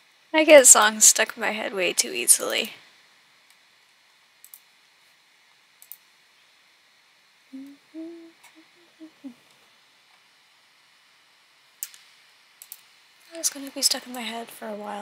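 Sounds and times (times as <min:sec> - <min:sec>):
faint clicks: 0:04.4 - 0:04.7, 0:05.8 - 0:06.1, 0:11.8 - 0:14.2
woman humming: 0:07.5 - 0:09.4.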